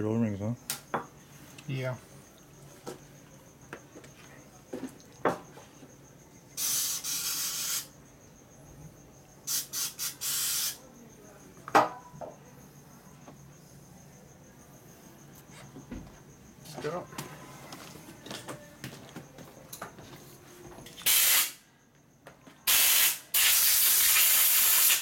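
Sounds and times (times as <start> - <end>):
compressed air blow gun blasts: 21.0 - 21.6, 22.7 - 25.0.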